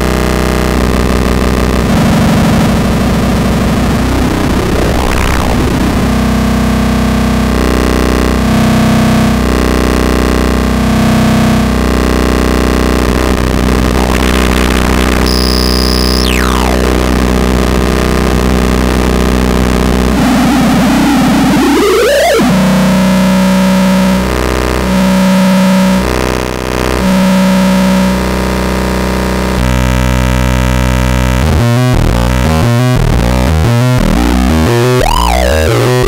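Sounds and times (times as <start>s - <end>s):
distorted synthesizer drone: 0.0s - 36.0s
low pulsing tone: 10.3s - 26.2s
tone sweeping: 13.7s - 17.2s.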